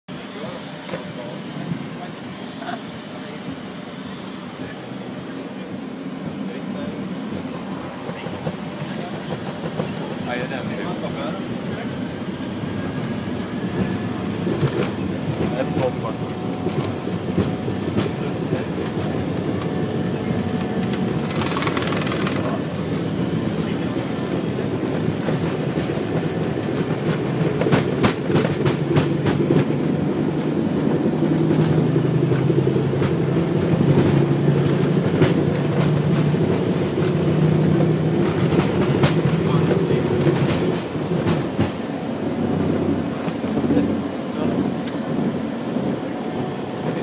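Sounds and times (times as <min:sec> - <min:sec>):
jet airliner rumbling on runway: 0:00.1 - 0:47.0
wheels thumping over runway: 0:20.6 - 0:22.7.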